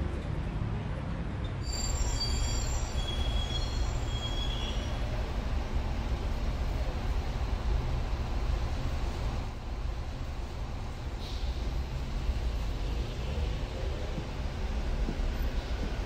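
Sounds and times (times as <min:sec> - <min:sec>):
city street traffic rumble: 0:00.0 - 0:16.0
faint high-pitched squeals: 0:01.6 - 0:05.1.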